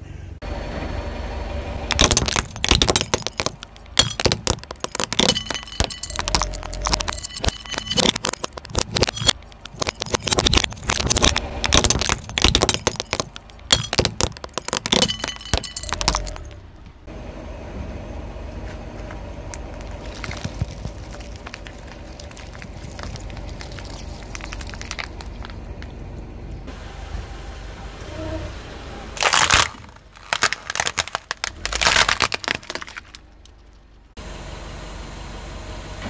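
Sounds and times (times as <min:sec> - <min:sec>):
tyre crushing plastic: 0:01.9 - 0:16.5, 0:19.6 - 0:25.6, 0:29.2 - 0:33.8
tyre squashing gel beads: 0:01.9 - 0:16.5, 0:19.5 - 0:25.6, 0:29.2 - 0:33.7.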